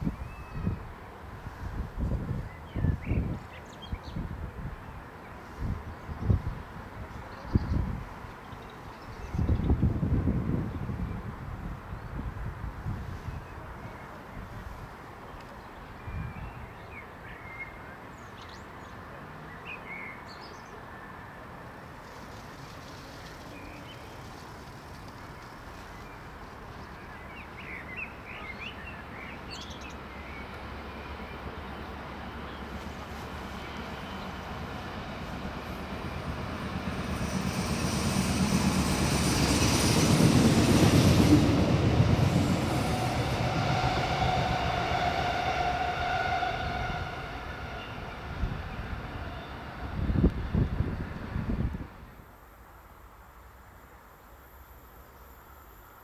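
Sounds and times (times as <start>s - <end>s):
diesel train passing: 20.8s - 52.2s
train wheels on rails: 21.8s - 27.9s, 29.4s - 52.0s.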